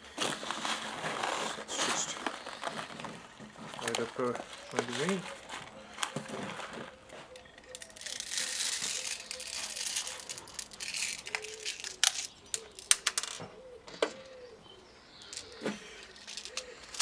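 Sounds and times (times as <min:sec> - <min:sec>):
sharp plastic clicks: 0:07.4 - 0:14.2
plastic pellets rattling: 0:07.6 - 0:13.4, 0:15.2 - 0:17.0.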